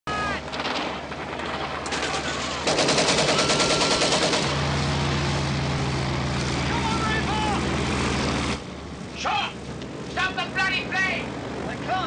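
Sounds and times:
propeller aircraft engine drone: 0.1 - 12.0
gunshots: 0.5 - 4.6
machine-gun fire: 0.5 - 4.6.

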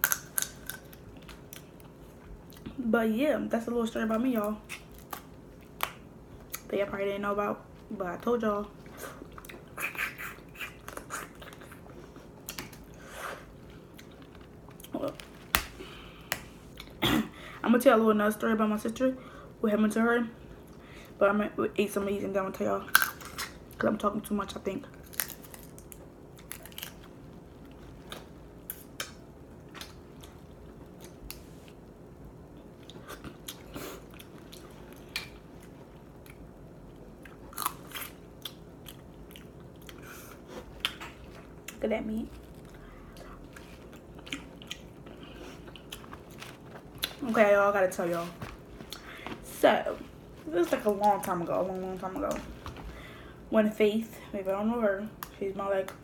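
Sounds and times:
crab shell clicking and cracking: 0.0 - 1.7
chewing: 37.2 - 47.2
chewing and biting: 42.4 - 47.2.

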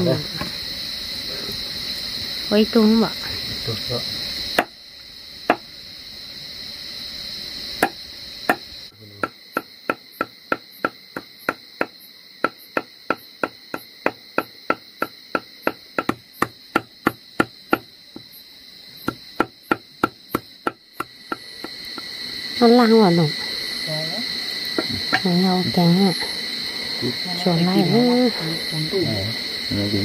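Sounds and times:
insects droning: 0.0 - 30.0
sharp knocks: 7.8 - 18.3, 19.0 - 22.1, 24.7 - 25.8.

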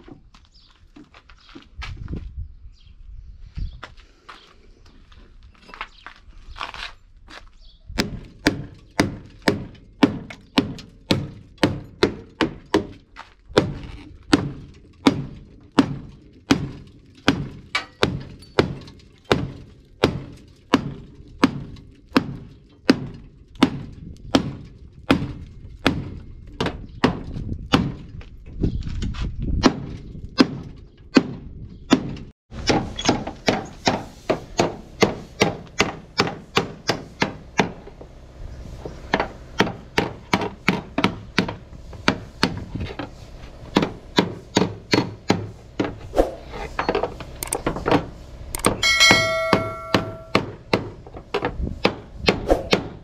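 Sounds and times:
hammer striking steel: 48.6 - 50.9.

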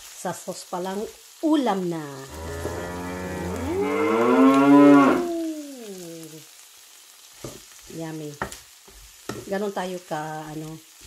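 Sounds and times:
woman's drawn-out mmm: 5.0 - 6.4.

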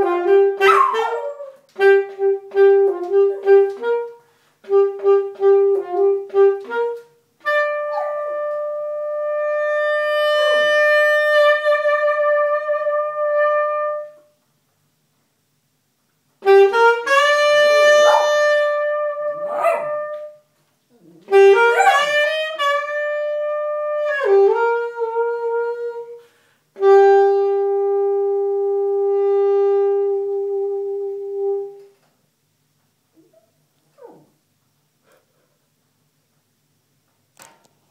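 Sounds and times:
saxophone playing: 0.0 - 14.4, 16.4 - 32.1
dog howling and yipping: 0.6 - 1.6, 7.9 - 8.2, 18.1 - 18.4, 19.5 - 20.0, 21.7 - 22.1.

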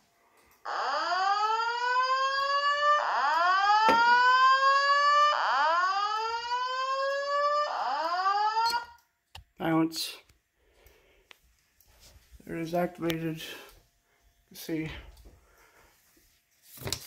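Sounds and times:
fire alarm whoop tone: 0.6 - 9.0.

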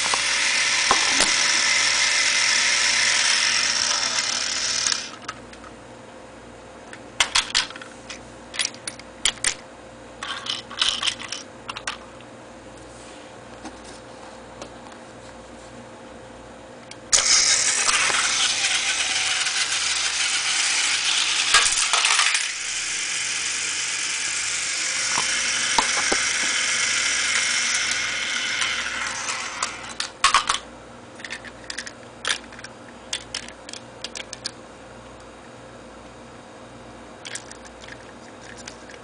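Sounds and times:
toy train motor whirring rattle: 0.0 - 5.3, 17.1 - 30.5.

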